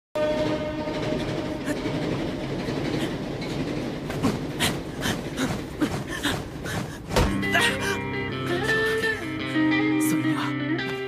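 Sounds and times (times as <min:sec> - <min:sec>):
train rumbling past: 0:00.2 - 0:09.4.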